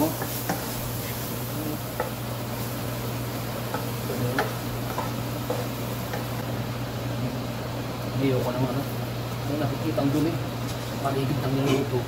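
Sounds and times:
low sizzle: 0:00.0 - 0:12.0
spatula tapping and scraping pan: 0:00.2 - 0:00.8, 0:02.0 - 0:02.2, 0:03.7 - 0:06.4.

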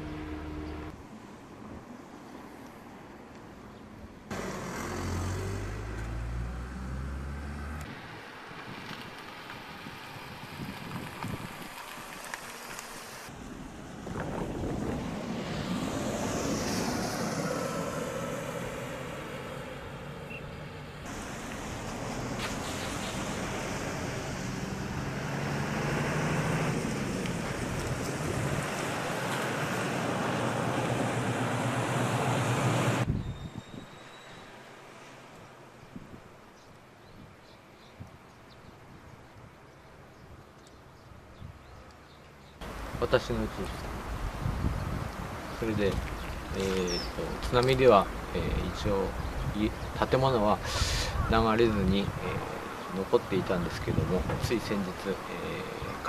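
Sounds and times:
wind on microphone: 0:09.8 - 0:11.8, 0:14.0 - 0:18.0, 0:32.8 - 0:34.0, 0:42.8 - 0:47.4
rushing wind or surf: 0:13.4 - 0:18.8, 0:42.8 - 0:54.8.

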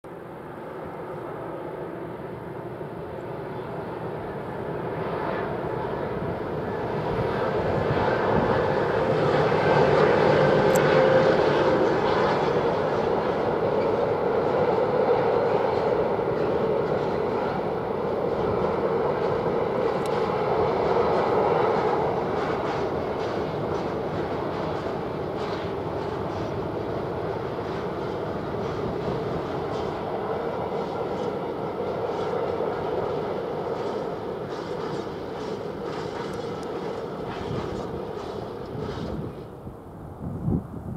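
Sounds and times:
freight train passing: 0:00.1 - 0:40.9.

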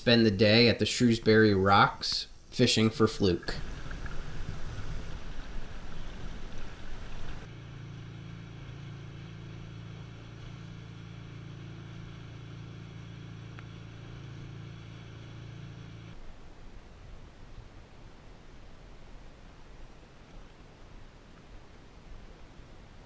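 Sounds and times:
motorboat engine droning: 0:03.6 - 0:16.2.

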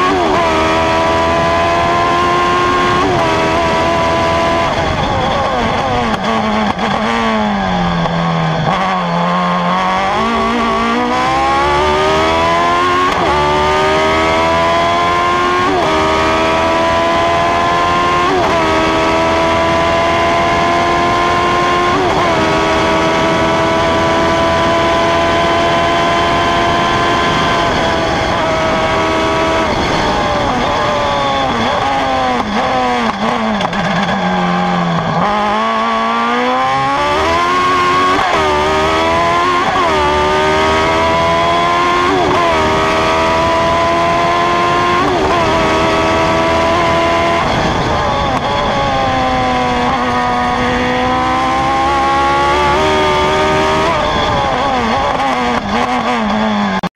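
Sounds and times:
racing car engine revving: 0:00.0 - 0:56.9.

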